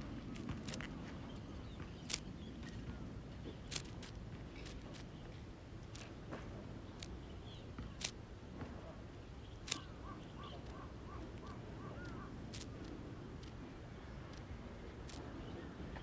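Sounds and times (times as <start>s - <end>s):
low outdoor background noise: 0.0s - 16.0s
sharp clicks: 3.7s - 5.1s, 9.6s - 9.9s, 10.6s - 13.6s.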